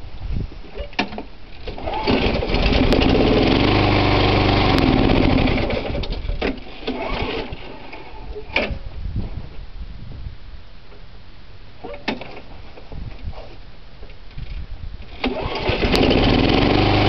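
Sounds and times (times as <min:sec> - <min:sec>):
mower engine starting and dying: 0:01.6 - 0:08.7, 0:15.1 - 0:17.0.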